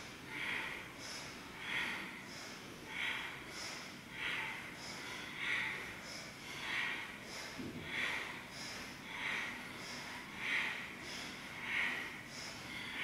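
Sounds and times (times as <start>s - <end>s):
rhythmic breathing: 0.0s - 13.0s.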